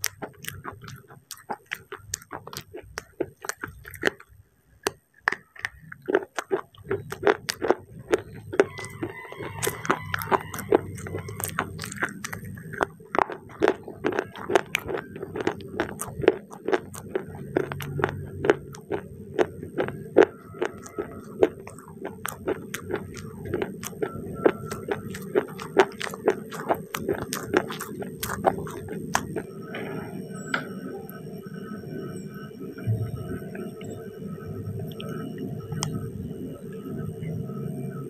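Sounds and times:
crunchy chewing: 0.0s - 29.6s, 34.8s - 36.0s.

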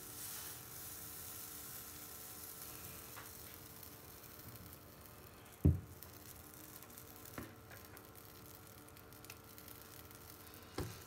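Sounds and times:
batter frying in pan: 0.0s - 11.0s
soft knock: 5.6s - 5.8s.

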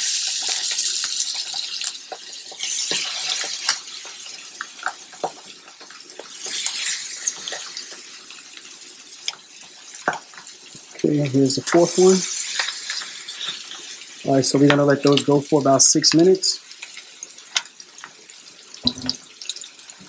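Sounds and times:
chicken sizzling in a frying pan: 0.0s - 20.0s.

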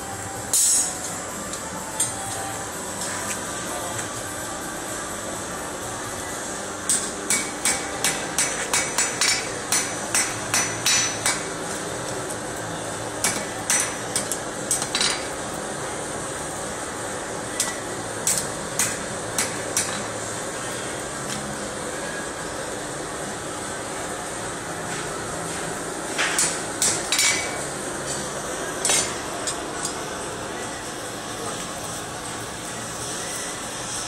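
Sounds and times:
steady hum: 0.0s - 34.0s
hammer striking iron on anvil: 6.9s - 11.5s, 13.2s - 15.3s, 17.6s - 20.0s, 26.2s - 28.2s, 28.8s - 29.6s.

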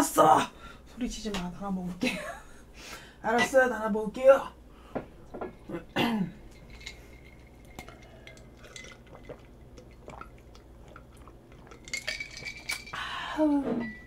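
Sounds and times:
person gulping a drink: 7.5s - 13.0s.

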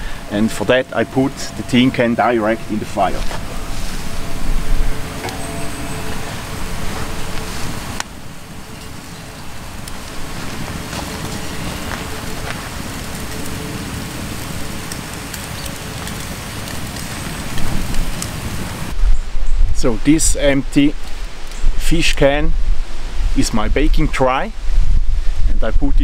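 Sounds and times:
steady rushing background: 0.0s - 19.0s
wood fire crackling and popping: 0.0s - 19.0s, 20.8s - 22.2s.

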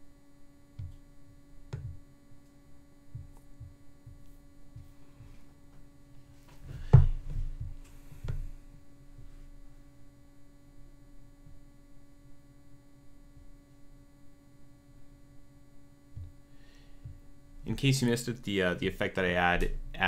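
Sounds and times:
faint electrical hum: 0.0s - 20.0s.

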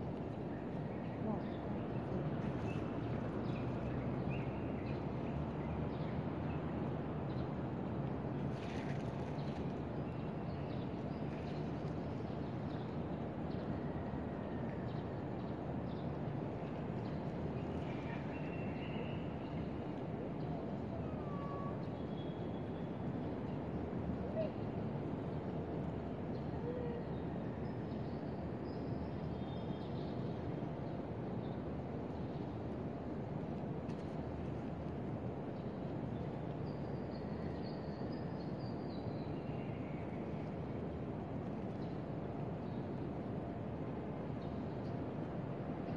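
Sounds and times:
city background rumble: 0.0s - 36.5s.

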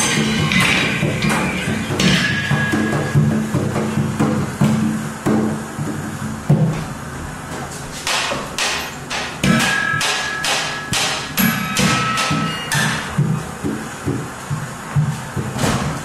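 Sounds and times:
sharp knocks on objects: 15.4s - 16.0s.

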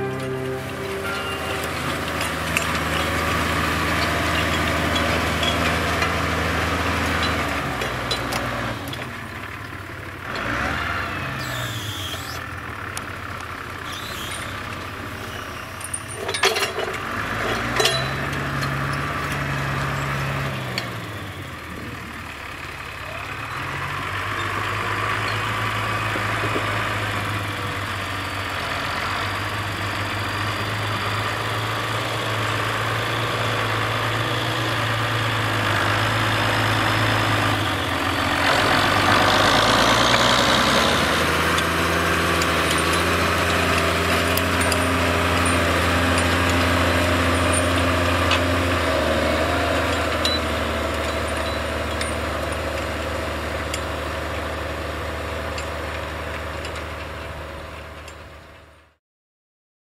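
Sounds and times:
sharp metal clanks: 0.0s - 5.9s, 15.7s - 19.0s
tractor diesel engine under load: 0.0s - 59.0s.

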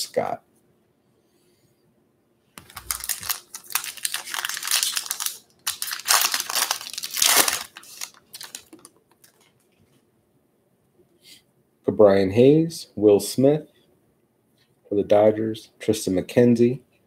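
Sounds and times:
foil wrapper crinkling and tearing: 2.6s - 9.5s.

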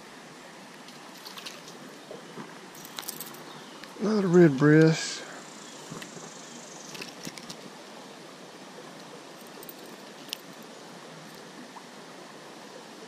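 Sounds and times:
creek water running: 0.0s - 13.0s.

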